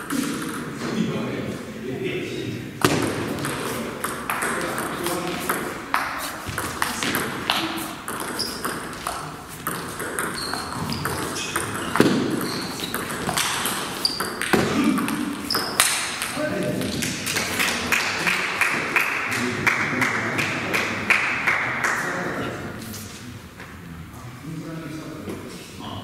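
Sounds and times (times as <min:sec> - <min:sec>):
ping pong ball hits: 0:00.0 - 0:00.8, 0:02.8 - 0:17.8
ball bouncing on table: 0:00.0 - 0:00.9, 0:02.8 - 0:17.5
voices chattering: 0:00.0 - 0:18.6.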